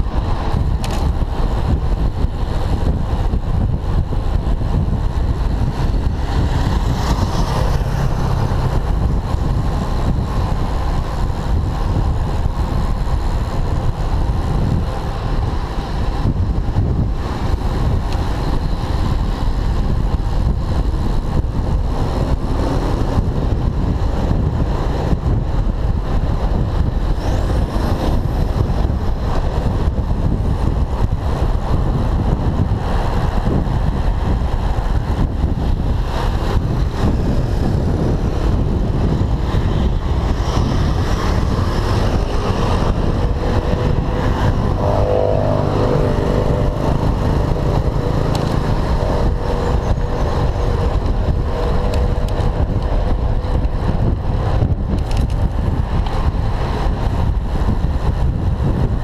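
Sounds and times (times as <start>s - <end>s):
city traffic: 0.0s - 59.0s
wind rushing on microphone: 0.0s - 59.0s.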